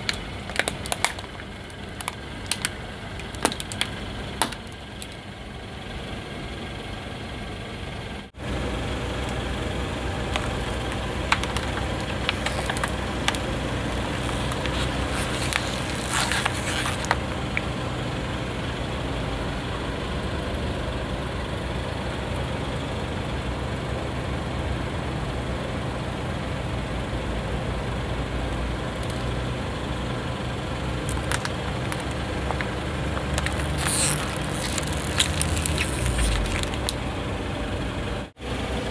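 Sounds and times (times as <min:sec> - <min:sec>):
plastic tub crackling: 0:00.0 - 0:05.2, 0:10.2 - 0:17.7, 0:31.0 - 0:37.0
car engine idling: 0:00.0 - 0:38.9.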